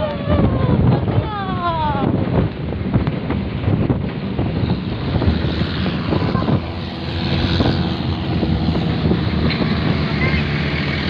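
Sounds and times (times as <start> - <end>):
wind noise: 0.0 - 11.0
truck engine running: 2.3 - 11.0.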